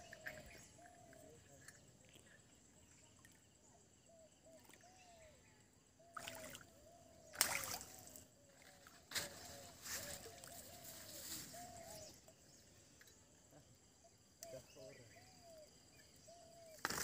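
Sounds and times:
fish splashing in water: 7.3 - 8.1.

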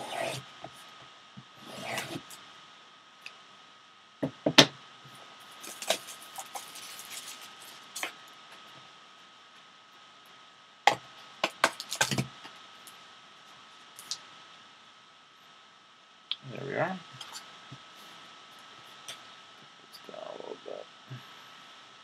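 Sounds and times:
plastic shrink-wrap crinkling: 5.5 - 8.3, 11.4 - 12.4.

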